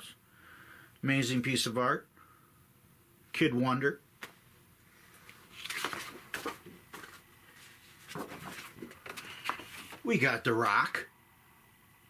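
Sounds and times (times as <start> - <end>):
picture frames rustling: 5.0 - 10.9.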